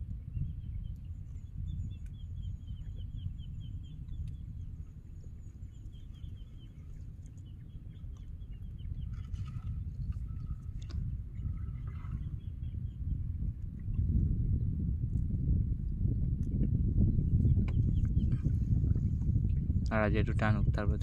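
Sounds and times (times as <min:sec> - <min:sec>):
wind rumble on microphone: 0:00.0 - 0:21.0
bird chirping: 0:00.7 - 0:09.2.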